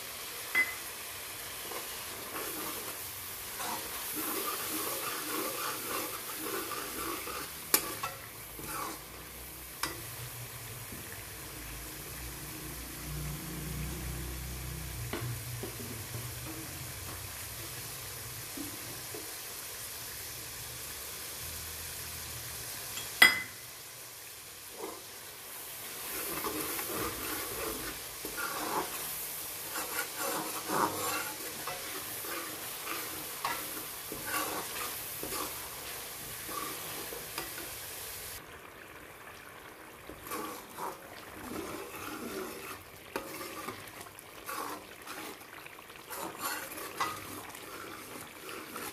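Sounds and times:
masala sizzling in oil: 0.0 - 48.9
ladle scraping pan: 1.6 - 10.2, 25.9 - 37.8, 40.1 - 48.9.

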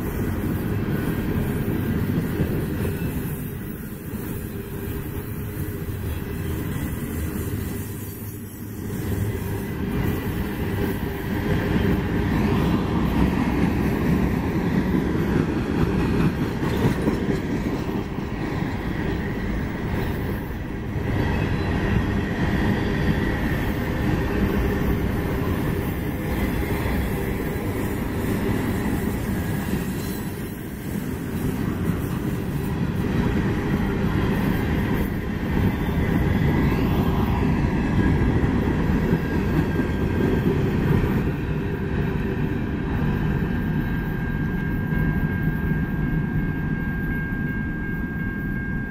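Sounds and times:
freight train wheels rumbling on rails: 0.0 - 48.9
faint high-pitched wheel squeal: 20.7 - 24.7, 28.6 - 32.6, 42.9 - 48.9.

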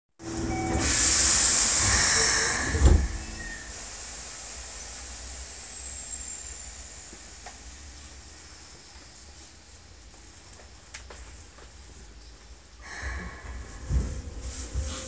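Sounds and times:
compressed air hiss: 0.8 - 4.8.

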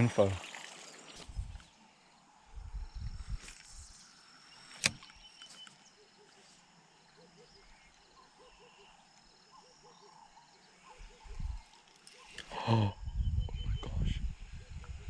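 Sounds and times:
sharp click: 4.7 - 5.7.

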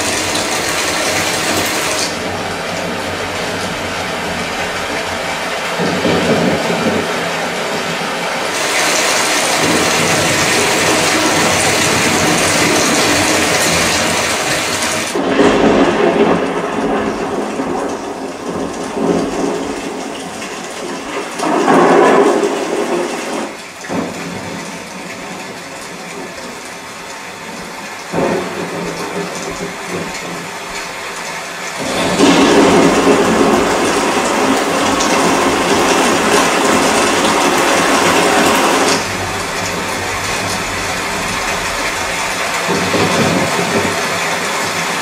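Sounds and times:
rain through speakers: 0.0 - 45.0
thunder rumble: 0.0 - 45.0.

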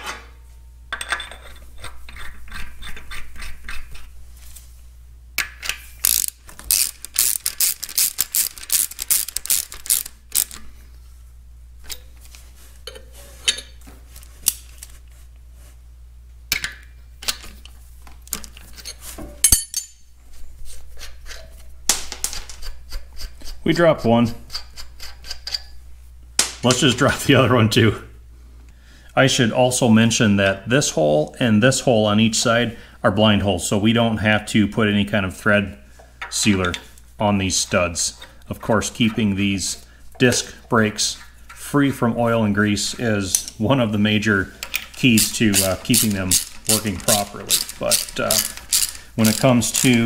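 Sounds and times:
socket ratchet clicking: 6.0 - 10.6, 44.9 - 50.0.

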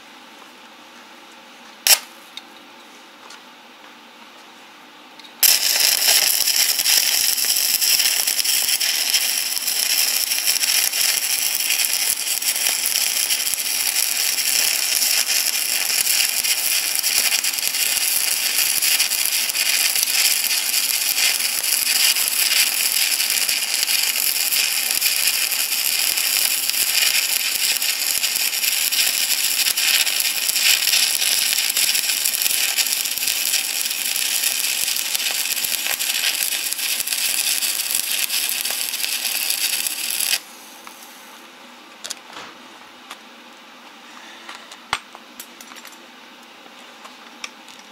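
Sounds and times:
welding arc crackling and sizzling: 1.8 - 2.2, 5.4 - 41.1.

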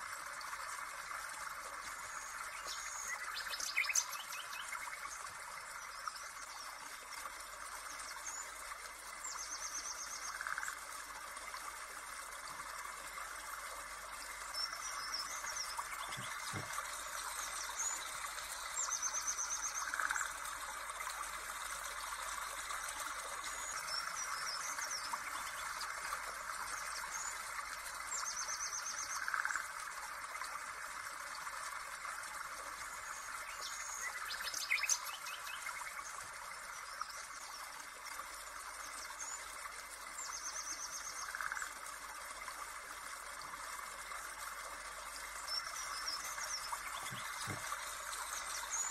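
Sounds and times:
birds chirping and trilling: 14.5 - 20.3, 45.5 - 48.9.

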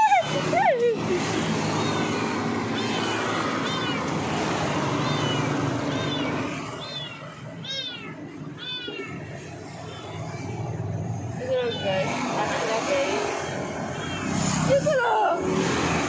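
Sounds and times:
kitten meowing: 1.4 - 12.1.

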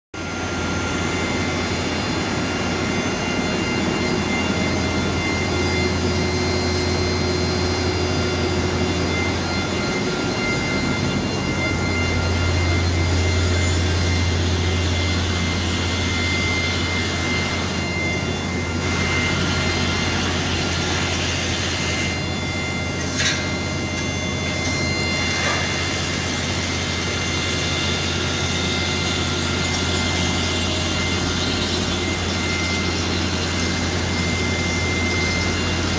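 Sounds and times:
machine droning with high whines: 0.2 - 35.9.

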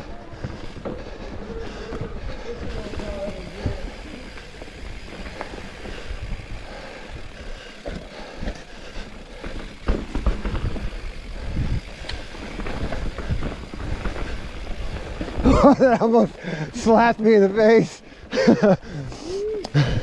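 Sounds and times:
bike tyre rumble on dirt: 0.0 - 20.0
rattles and knocks over bumps: 7.8 - 15.9.

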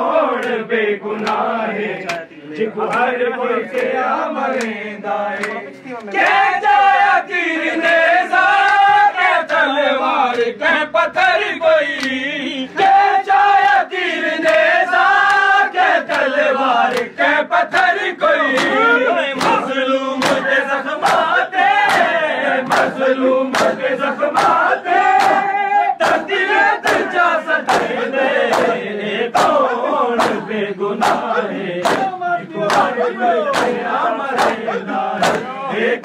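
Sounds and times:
crowd of men chanting: 0.0 - 36.0
hands slapping bare chests: 0.3 - 0.6, 1.2 - 3.1, 8.6 - 9.7, 11.9 - 12.2, 14.4 - 17.1, 17.7 - 28.8, 29.4 - 35.5.

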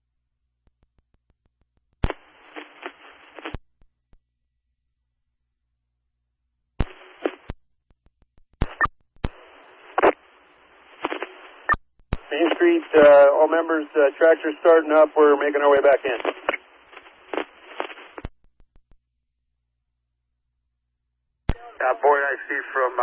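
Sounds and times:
radio squelch click: 2.0 - 3.6, 6.8 - 10.2, 10.9 - 13.1, 15.8 - 18.4
radio static hiss: 2.0 - 3.6, 6.8 - 7.5, 8.6 - 18.3, 21.5 - 23.0.

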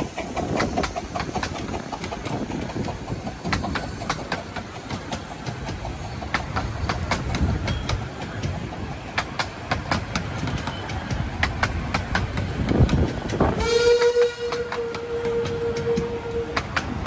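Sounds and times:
train wheels clicking over rail joints: 0.0 - 17.0
steam locomotive whistle: 13.5 - 16.8.

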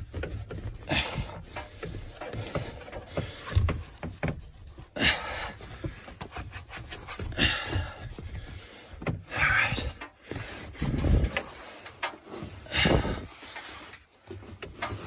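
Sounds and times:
wet rag scrubbing sheet metal: 9.7 - 15.0.

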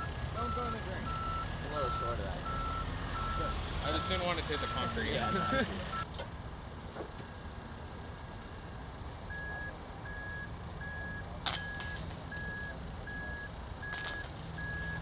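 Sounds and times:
backup alarm beeping: 0.0 - 6.1, 9.3 - 15.0
low engine rumble: 0.0 - 15.0
disc hitting metal chains: 11.5 - 12.8, 13.8 - 15.0.

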